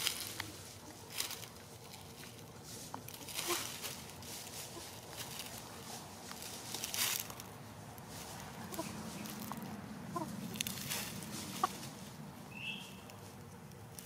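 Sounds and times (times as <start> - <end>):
hen stepping on dry leaves: 0.0 - 14.0.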